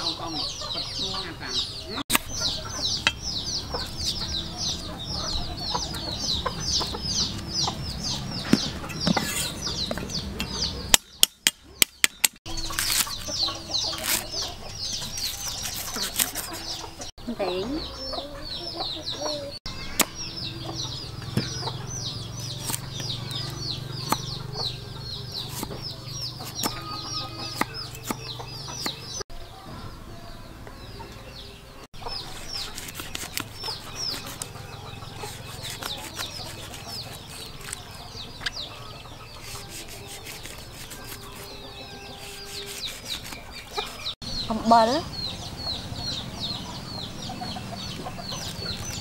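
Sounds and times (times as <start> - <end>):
chicks peeping: 0.0 - 11.0, 12.4 - 49.0.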